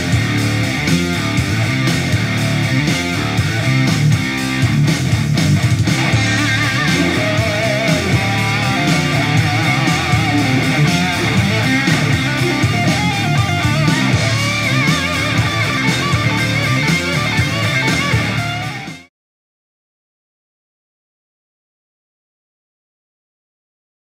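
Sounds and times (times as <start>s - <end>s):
guitar music through a speaker: 0.0s - 19.1s.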